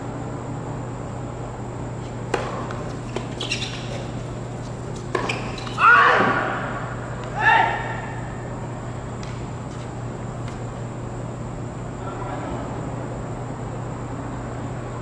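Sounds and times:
steady low hum: 0.0 - 15.0
racket striking tennis ball: 2.2 - 5.8
shoe squeals on court: 2.7 - 6.1.

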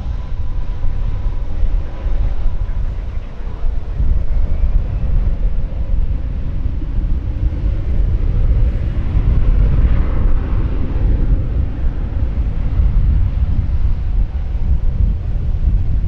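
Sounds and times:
airliner jet engines: 0.0 - 16.0
wind buffeting on microphone: 0.0 - 16.0.

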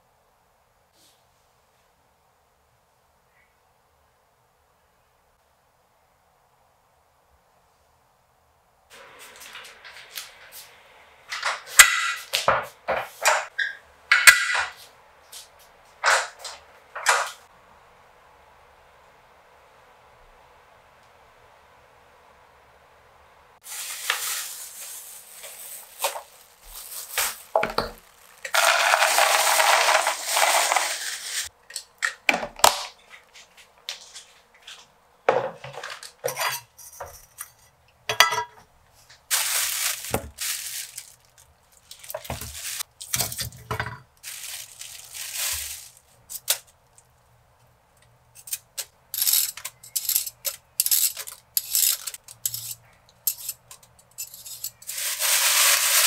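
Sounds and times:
metal utensils clinking: 48.4 - 56.0.

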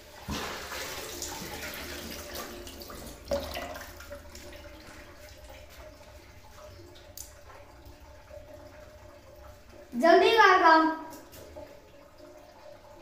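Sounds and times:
tap water running into sink: 0.0 - 13.0.

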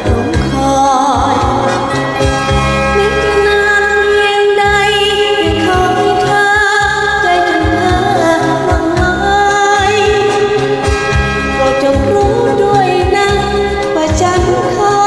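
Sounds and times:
woman singing: 0.0 - 2.2, 2.9 - 10.9, 11.6 - 15.0
karaoke backing track with beat: 0.0 - 15.0.

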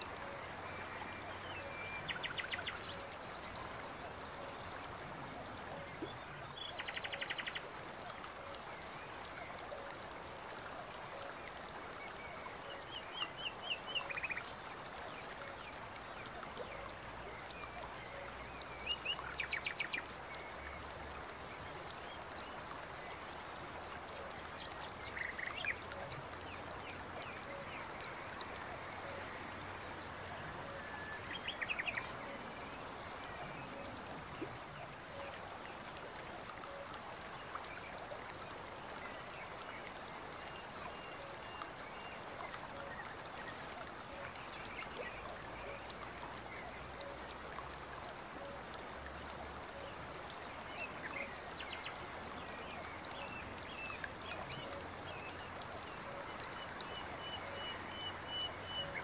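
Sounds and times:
running water: 0.0 - 59.0.

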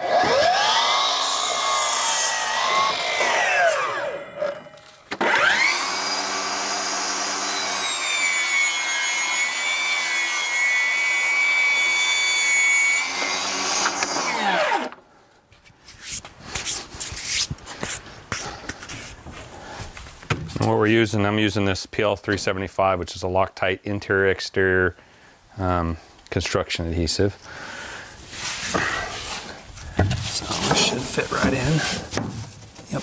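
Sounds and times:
table saw ripping board: 0.0 - 4.0, 5.1 - 15.0
miter saw winding down: 0.0 - 8.9, 13.0 - 14.9.

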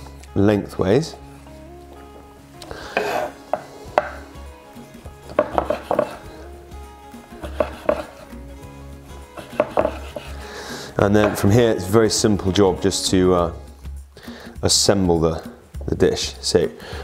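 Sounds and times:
knife tapping wooden board: 3.0 - 4.2, 5.3 - 6.2, 7.4 - 8.1, 9.4 - 10.3, 11.2 - 11.5.

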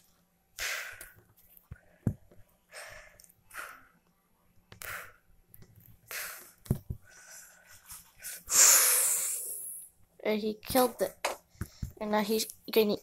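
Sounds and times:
person breathing puffs and hisses: 0.6 - 1.2, 6.0 - 9.9.

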